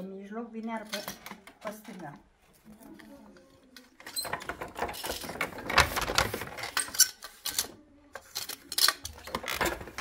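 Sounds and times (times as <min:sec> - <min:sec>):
wooden loom clicking and knocking: 0:04.0 - 0:07.8.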